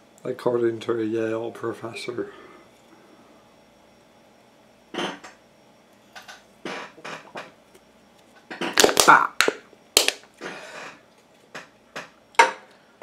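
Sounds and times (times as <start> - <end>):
drink can crinkling: 8.6 - 10.3.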